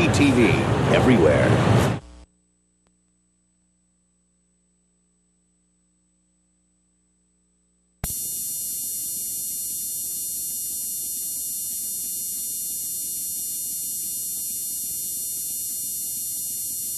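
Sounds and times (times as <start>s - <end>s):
high-pitched whine: 8.0s - 16.9s
television static hiss: 8.0s - 16.9s.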